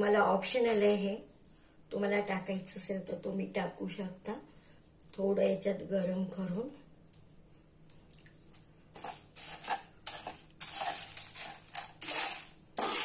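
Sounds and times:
metal spoon scraping roasting spices: 8.9s - 13.0s.

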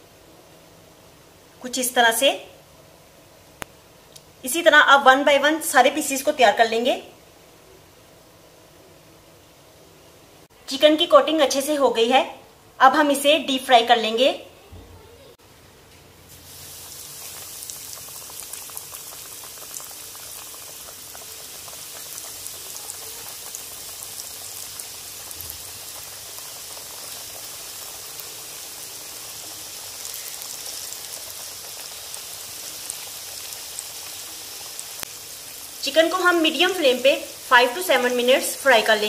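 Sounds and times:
chicken deep-frying in oil: 16.3s - 39.0s.

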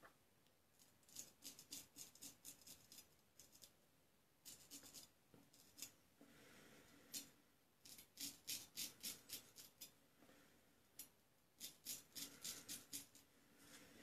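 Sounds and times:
razor scraping stubble: 11.6s - 13.2s.

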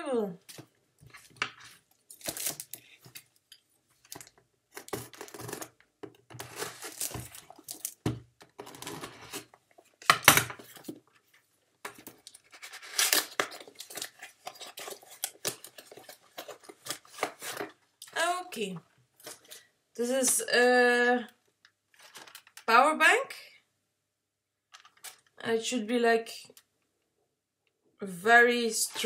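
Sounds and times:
packaging ripping and rustling: 1.6s - 2.8s, 4.2s - 8.0s, 12.0s - 17.8s, 22.0s - 22.6s.

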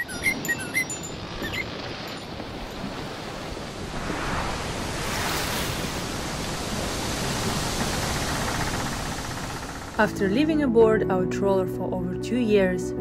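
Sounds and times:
steady surf-like rushing: 3.4s - 10.0s.

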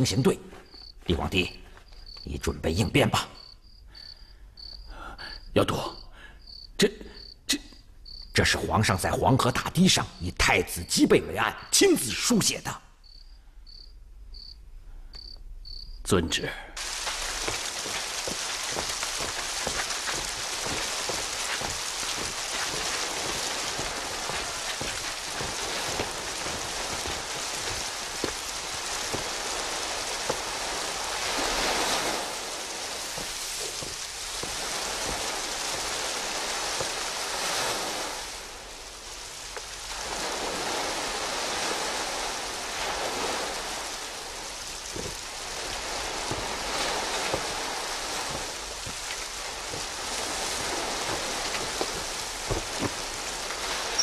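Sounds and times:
sea surf washing onto beach: 16.8s - 54.0s.

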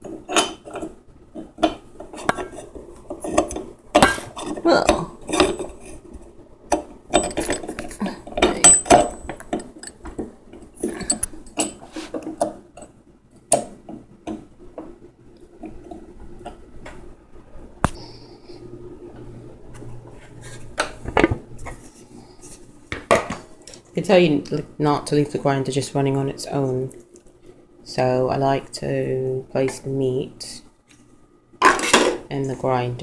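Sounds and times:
metal parts and dishes clinking: 0.0s - 0.9s, 1.6s - 6.0s, 6.7s - 10.0s, 10.8s - 12.9s.

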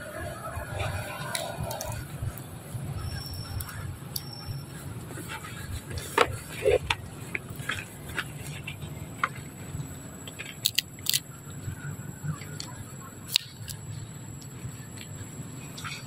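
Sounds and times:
monkey chewing nuts: 0.7s - 11.4s, 12.4s - 16.0s
monkey cracking peanut shells: 1.2s - 2.0s, 10.3s - 11.3s, 12.4s - 13.8s.

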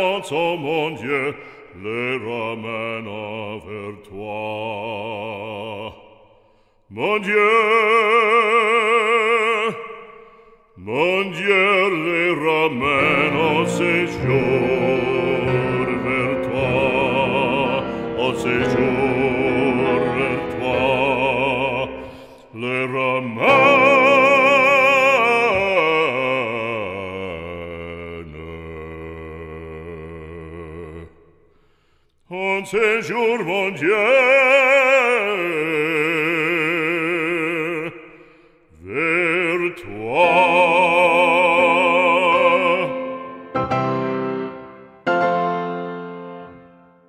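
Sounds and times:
operatic voice singing: 0.0s - 31.4s, 32.2s - 44.6s
deep musical accompaniment: 12.9s - 22.1s.

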